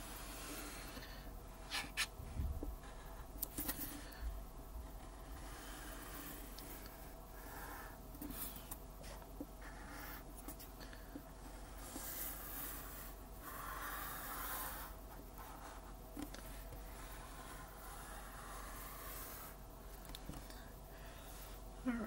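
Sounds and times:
crayon scratching across paper: 0:11.4 - 0:20.0.

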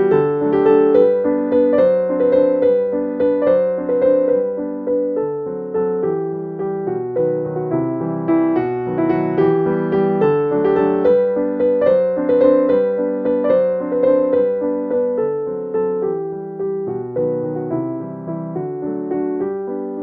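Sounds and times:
gentle piano melody: 0:00.0 - 0:20.0.

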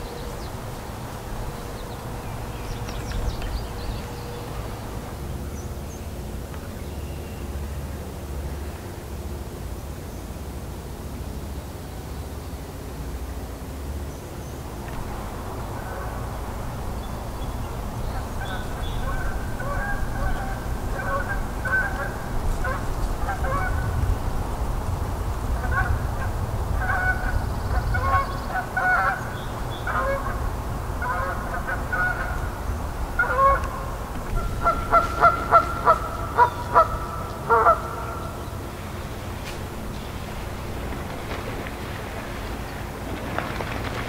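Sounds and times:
geese honking: 0:15.6 - 0:16.6, 0:18.1 - 0:24.0, 0:25.6 - 0:38.6.

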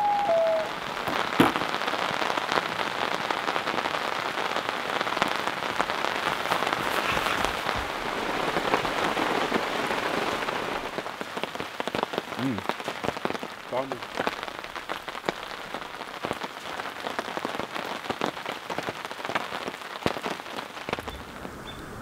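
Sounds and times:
long steady pitched call: 0:00.0 - 0:01.0
rain pattering: 0:00.0 - 0:22.0.

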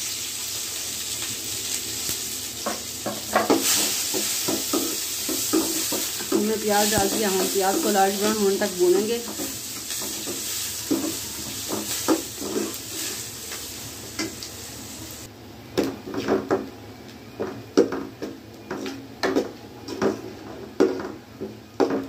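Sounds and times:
onions sizzling in a pot: 0:00.0 - 0:15.3.

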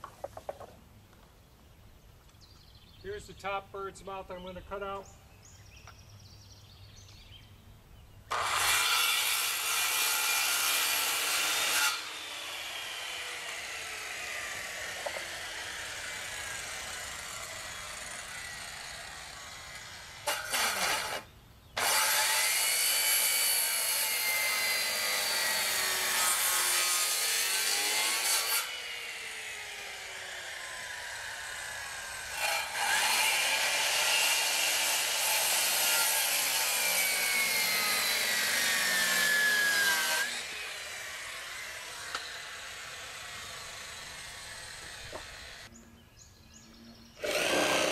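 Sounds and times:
circular saw cutting wood: 0:08.3 - 0:45.7, 0:47.2 - 0:47.9.

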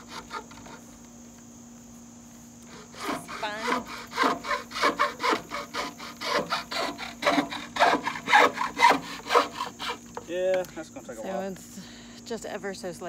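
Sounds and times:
handsaw cutting wood: 0:00.0 - 0:00.9, 0:02.7 - 0:10.0.

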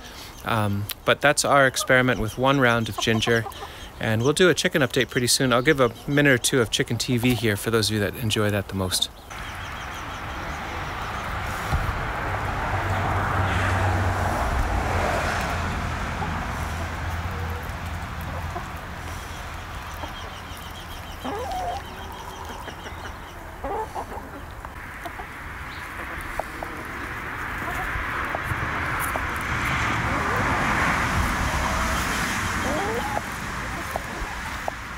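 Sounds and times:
hens clucking: 0:00.4 - 0:13.4, 0:15.3 - 0:34.9.

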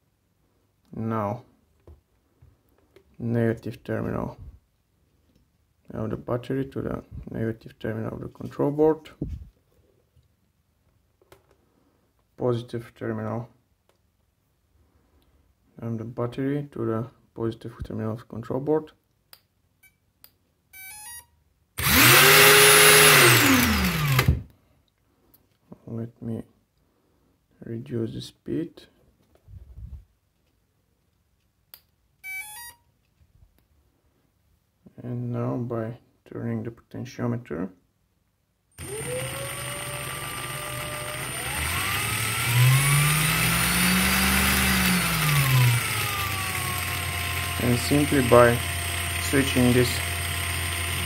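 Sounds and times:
angle grinder motor whining: 0:21.8 - 0:24.4, 0:38.8 - 0:51.0.

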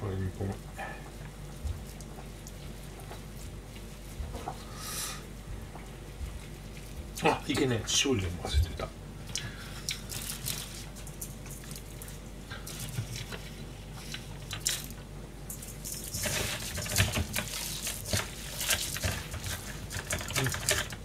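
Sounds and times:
hands squishing food in metal bowl: 0:05.6 - 0:21.0.

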